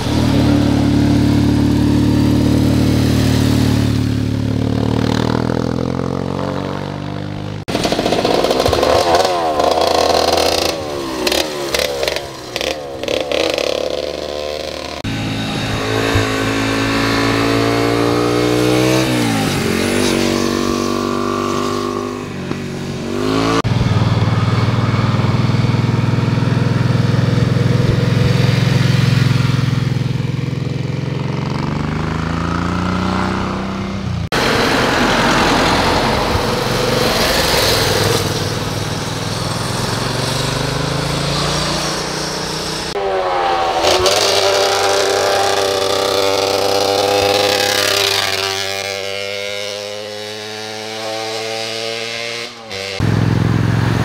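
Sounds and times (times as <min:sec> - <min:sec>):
motorcycles riding past: 0:00.0 - 0:54.0.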